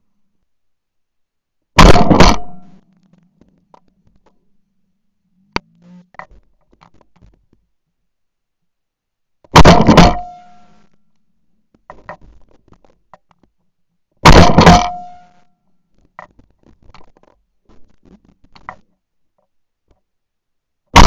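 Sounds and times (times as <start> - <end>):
shotgun shot: 1.8 - 2.7, 9.6 - 10.5, 14.2 - 15.3
faint clicks and knocks: 2.6 - 4.9, 5.5 - 8.8, 10.8 - 14.2, 15.3 - 20.2.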